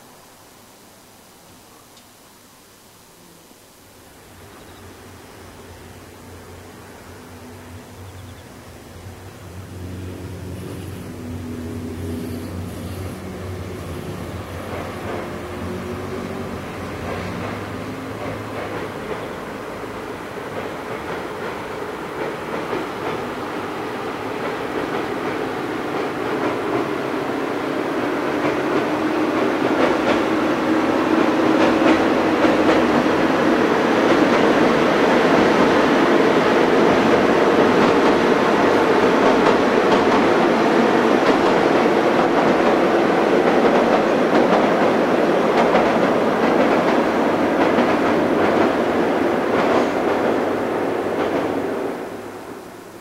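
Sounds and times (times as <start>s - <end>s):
train rumbling over steel bridge: 3.2s - 53.0s
rail clicks: 6.2s - 52.2s.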